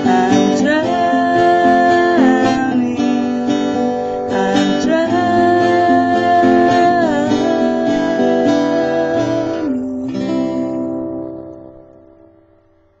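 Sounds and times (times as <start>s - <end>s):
acoustic guitar strummed: 0.0s - 13.0s.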